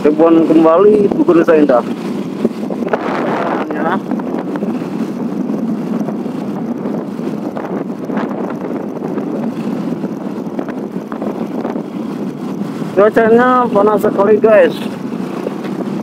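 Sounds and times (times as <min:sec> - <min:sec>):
motorcycle engine running: 0:00.0 - 0:16.0
wind buffeting microphone: 0:00.0 - 0:16.0.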